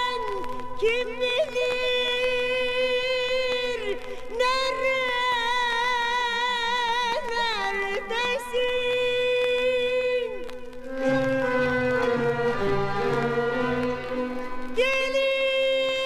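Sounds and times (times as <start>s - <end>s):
melody with long held notes: 10.4s - 15.4s.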